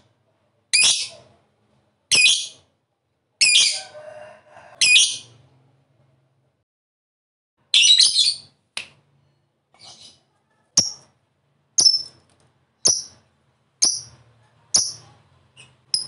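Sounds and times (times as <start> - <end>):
lovebird chattering and chirping: 4.8 - 5.3, 7.7 - 8.5, 11.8 - 12.2, 12.8 - 13.2, 13.8 - 16.0.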